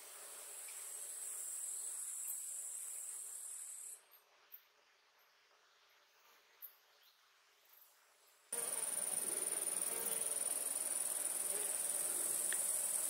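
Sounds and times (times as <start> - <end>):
insects chirring in grass: 0.0 - 4.2, 8.6 - 13.0
faint ticks: 12.3 - 12.8.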